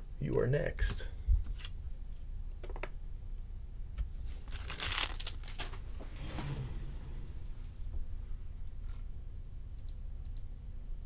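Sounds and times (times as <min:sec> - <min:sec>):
packaging rustling: 0:04.4 - 0:05.9.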